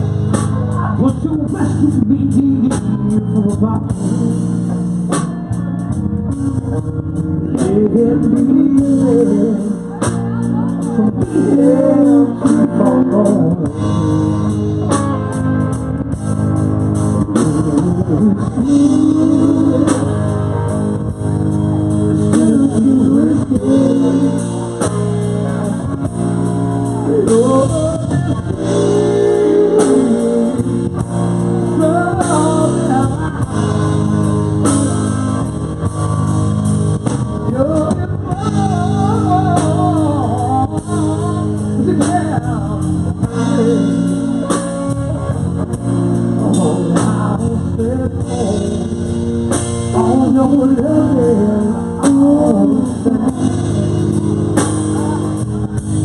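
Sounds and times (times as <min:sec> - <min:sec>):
man singing: 0:00.0 - 0:05.0, 0:07.2 - 0:15.7, 0:17.0 - 0:35.5, 0:37.4 - 0:55.6
drum kit: 0:00.0 - 0:56.0
electric bass: 0:00.0 - 0:56.0
electric guitars: 0:00.0 - 0:56.0.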